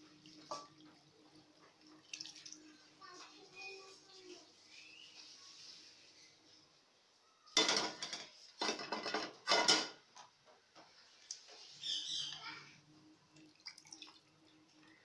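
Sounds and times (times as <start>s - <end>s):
liquid pouring: 0.0s - 3.0s, 13.3s - 15.0s
metal pot and strainer clattering: 7.6s - 10.0s.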